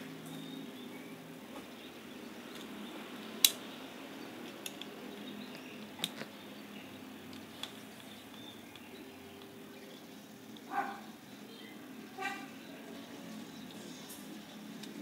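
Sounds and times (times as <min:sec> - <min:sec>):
clicks of small reel parts: 0:03.4 - 0:03.7, 0:04.4 - 0:06.3, 0:07.3 - 0:09.5.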